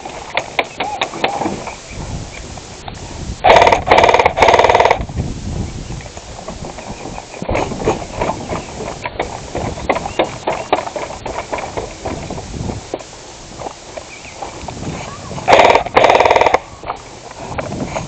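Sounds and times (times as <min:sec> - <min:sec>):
blaster rapid shots: 0:03.4 - 0:05.0, 0:15.5 - 0:16.6
footsteps on wooden deck: 0:06.0 - 0:15.5.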